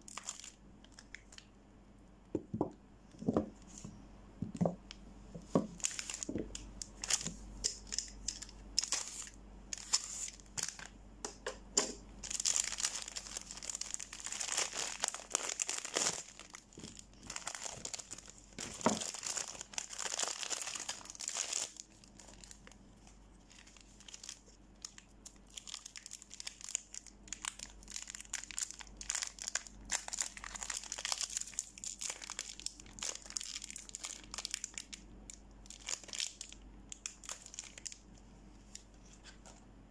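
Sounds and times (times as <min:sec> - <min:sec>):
plastic wrapper crinkling and tearing: 0:00.0 - 0:01.5, 0:05.7 - 0:11.0, 0:12.2 - 0:39.6.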